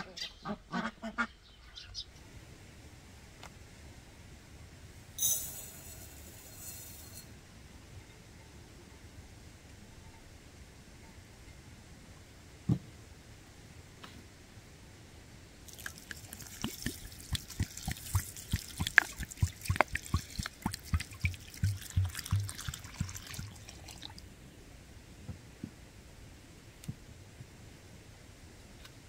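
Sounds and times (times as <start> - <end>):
water pouring and splashing: 15.7 - 24.2.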